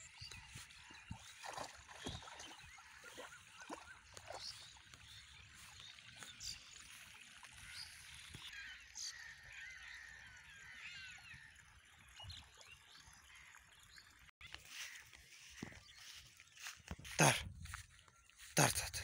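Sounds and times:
dog splashing through water: 0.8 - 5.3.

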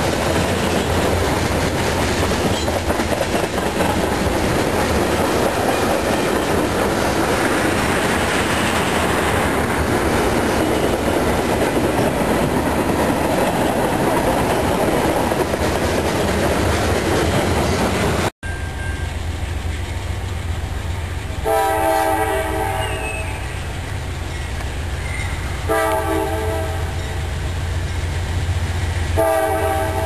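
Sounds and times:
freight train rolling past: 0.0 - 30.0
locomotive chime horn: 21.4 - 23.5, 25.6 - 27.0, 29.2 - 30.0.

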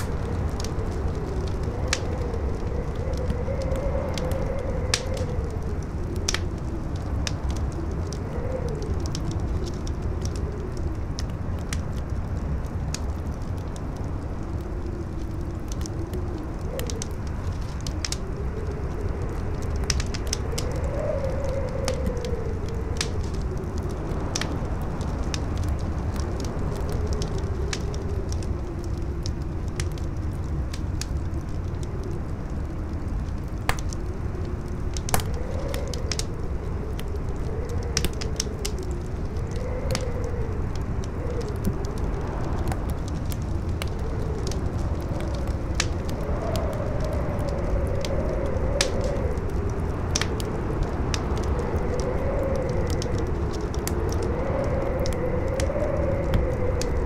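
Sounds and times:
campfire crackling and popping: 0.0 - 57.0
howling wind: 0.0 - 57.0
strong wind rumble: 0.0 - 57.0.

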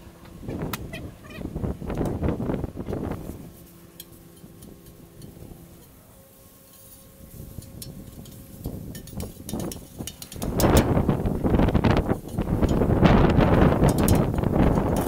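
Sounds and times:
wind buffeting microphone: 0.3 - 3.5, 7.3 - 15.0
metal utensil scraping a griddle: 3.2 - 15.0.

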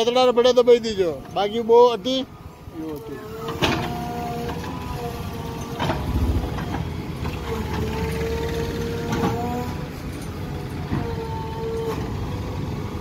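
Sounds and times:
diesel engine under load: 3.2 - 13.0
steady whine: 5.8 - 7.6.

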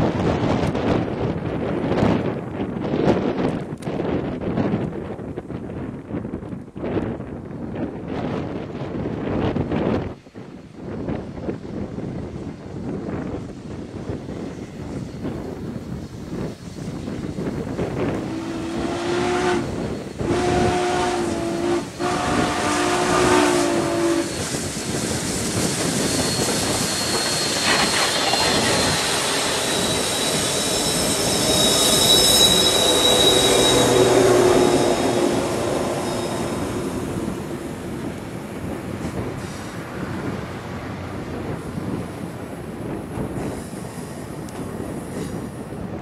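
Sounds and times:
train wheel and rail noise: 0.0 - 46.0
high wheel squeal: 18.0 - 38.7
steam whistle blasts: 18.2 - 24.6, 26.1 - 37.6.

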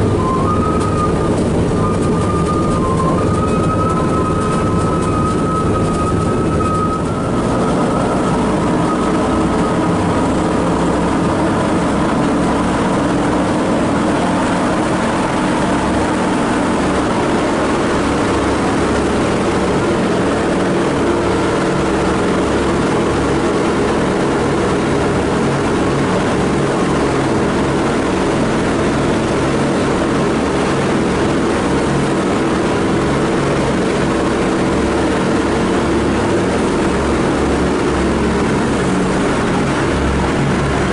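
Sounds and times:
aircraft engines droning: 0.0 - 40.9
propeller throb: 0.0 - 40.9.

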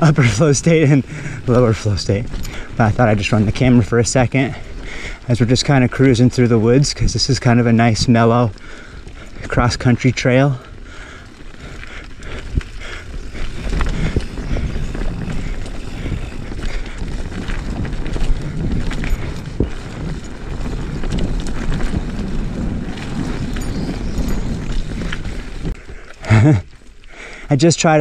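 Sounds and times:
tyres rumbling on dirt: 0.0 - 28.0
bike clicks and knocks: 11.2 - 27.1.

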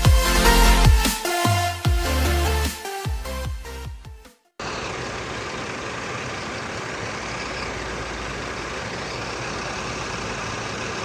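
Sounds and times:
tour bus idling: 4.6 - 11.0.

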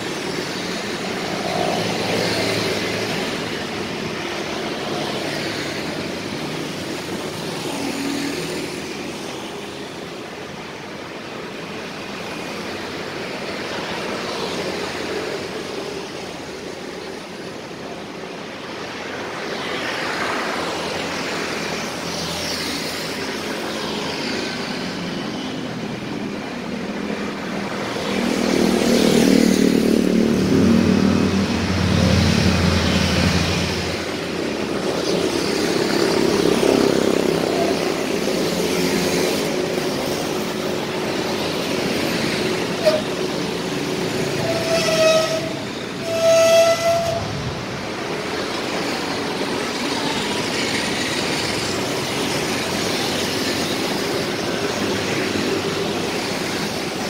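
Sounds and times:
cars and motorcycles passing: 0.0 - 57.0
deep engine passing: 28.6 - 34.4.

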